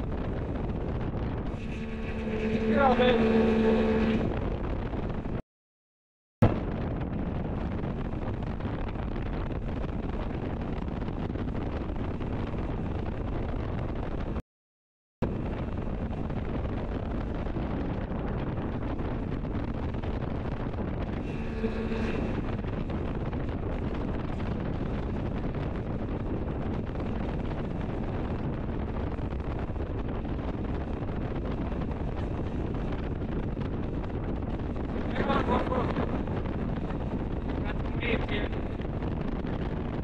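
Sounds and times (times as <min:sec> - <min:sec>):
wind buffeting microphone: 0:00.0 - 0:05.4, 0:06.4 - 0:14.4, 0:15.2 - 0:40.0
speed boat engine droning: 0:00.1 - 0:05.4, 0:15.3 - 0:38.8.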